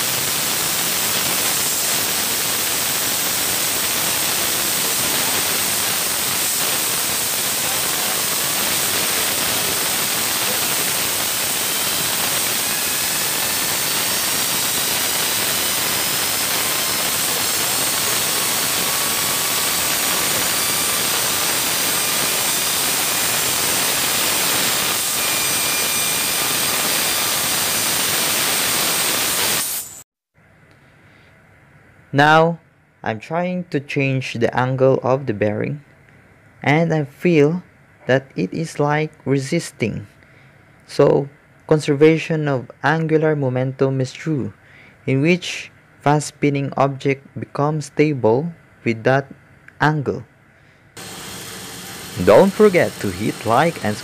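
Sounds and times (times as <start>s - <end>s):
compressed air jet hissing: 0.0s - 25.4s, 26.1s - 30.0s, 51.0s - 54.0s
spinning bearing whistling: 51.0s - 54.0s.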